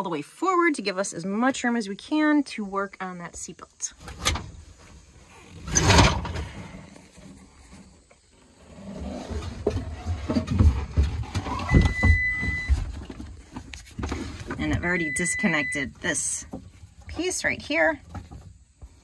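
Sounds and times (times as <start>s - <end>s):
seat scraping along rails: 4.0s - 15.2s
high beep: 11.7s - 12.7s, 14.8s - 15.9s.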